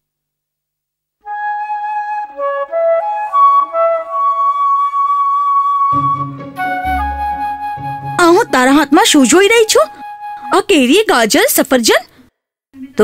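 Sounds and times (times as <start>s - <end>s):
solo flute melody: 1.2s - 10.7s.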